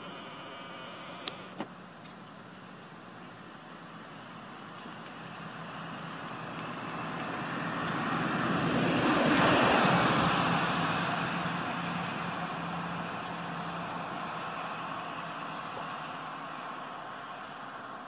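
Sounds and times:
steady low hum: 0.0s - 7.4s
vehicle passing: 4.6s - 18.0s.

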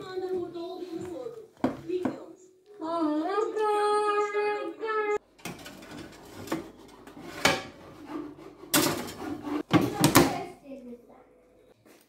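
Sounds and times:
metal pan scraping on oven rack: 5.4s - 9.7s.

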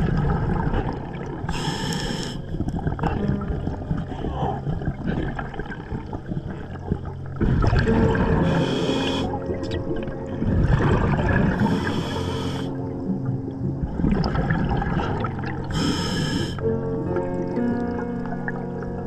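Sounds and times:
bubbles gurgling: 0.0s - 19.0s
regulator inhale hiss: 1.5s - 2.5s, 8.4s - 9.4s, 11.5s - 12.8s, 15.7s - 16.6s.

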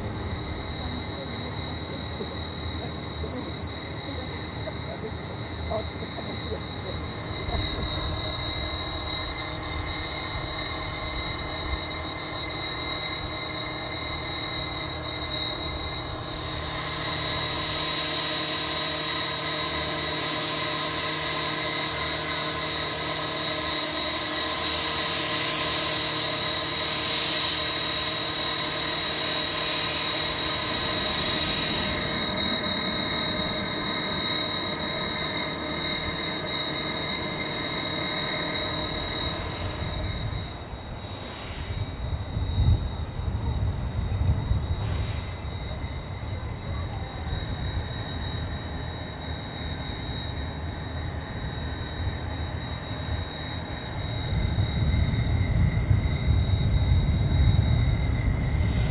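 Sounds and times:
steam hissing: 0.0s - 58.9s
steam locomotive high whine: 0.0s - 58.9s.

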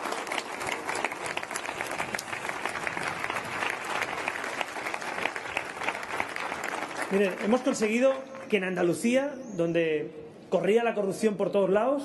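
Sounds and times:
crowd applauding: 0.0s - 8.3s.

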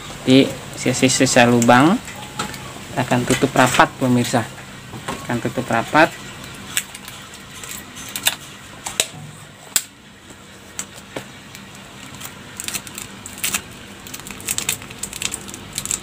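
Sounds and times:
plastic clicks and crackles: 12.0s - 16.0s.

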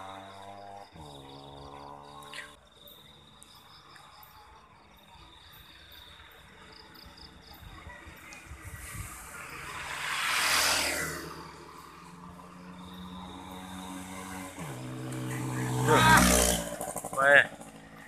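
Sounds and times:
night insects chirping: 0.0s - 17.8s
motorcycle engine idling: 16.5s - 18.0s.

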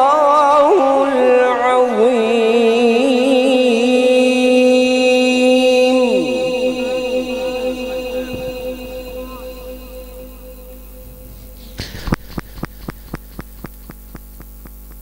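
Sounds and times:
man chanting over loudspeaker: 0.0s - 13.0s
echo repeats: 5.0s - 14.9s.

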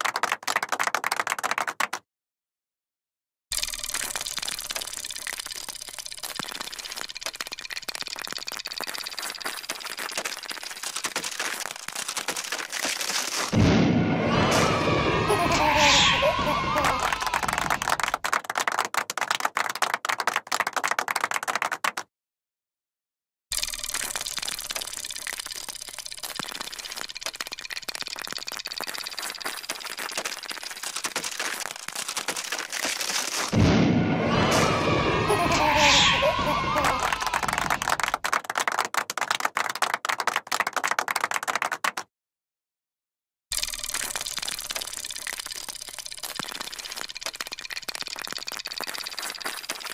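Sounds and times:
cartoon clicking and clattering: 3.5s - 13.6s, 23.6s - 33.6s, 36.8s - 42.0s, 43.5s - 49.9s.

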